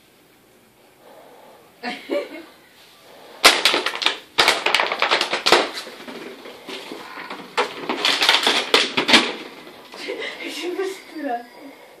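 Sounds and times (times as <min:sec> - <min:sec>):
plastic bottle crackling: 0:03.4 - 0:10.1.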